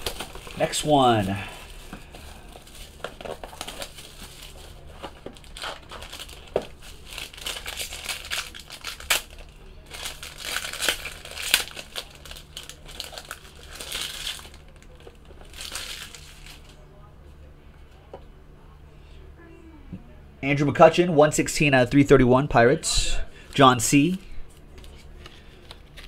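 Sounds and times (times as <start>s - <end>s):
plastic wrap crinkling: 0.0s - 16.8s, 23.5s - 26.0s.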